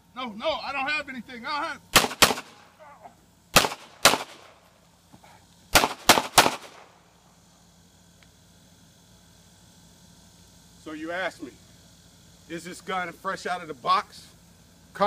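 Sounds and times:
pistol shots: 1.9s - 2.7s, 3.5s - 4.6s, 5.7s - 6.9s.

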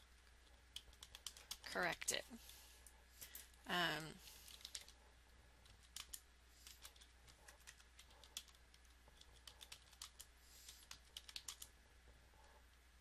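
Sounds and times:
low electrical hum: 0.0s - 13.0s
typing on a computer keyboard: 0.7s - 1.7s, 4.5s - 5.0s, 5.6s - 11.7s.

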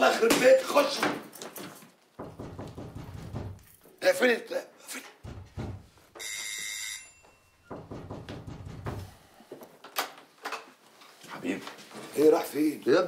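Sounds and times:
electric doorbell ringing: 6.2s - 7.7s.

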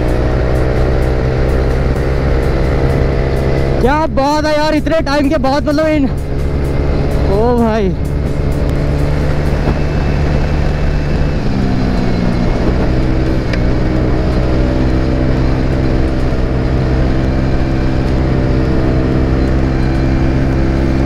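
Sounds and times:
scooter engine running: 0.0s - 21.0s
wind rush on microphone: 6.2s - 21.0s.

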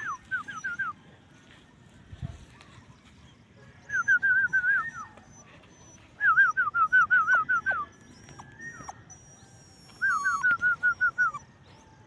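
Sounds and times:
puppy whining: 0.0s - 1.0s, 3.9s - 12.0s.

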